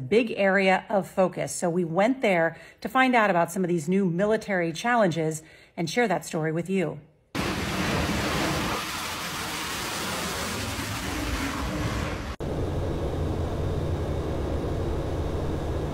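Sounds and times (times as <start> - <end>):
aircraft cabin drone: 7.4 - 15.9
jet engines roaring: 7.4 - 15.9
low hum: 7.4 - 15.9.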